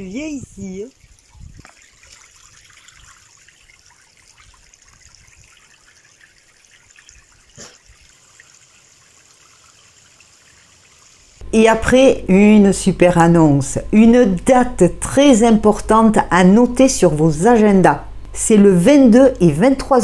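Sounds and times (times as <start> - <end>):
water trickling into stone basin: 0.0 - 11.4.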